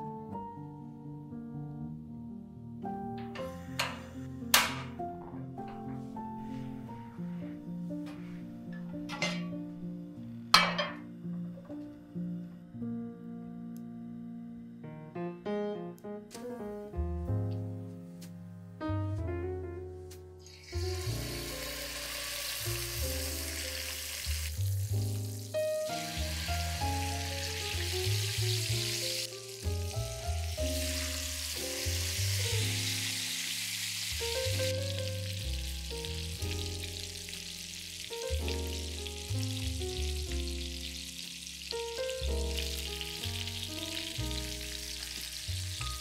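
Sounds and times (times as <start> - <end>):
background music: 0.0 - 46.0
chicken sizzling in oil: 20.4 - 46.0.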